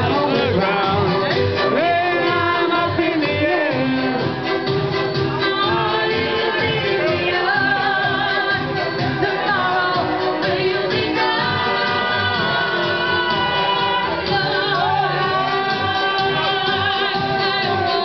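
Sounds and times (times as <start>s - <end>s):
recorded backing track: 0.0s - 18.0s
woman singing karaoke: 5.3s - 18.0s.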